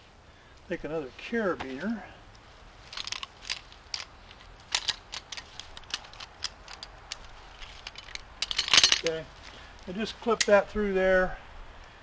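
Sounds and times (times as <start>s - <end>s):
metal carabiners clinking: 2.8s - 9.5s.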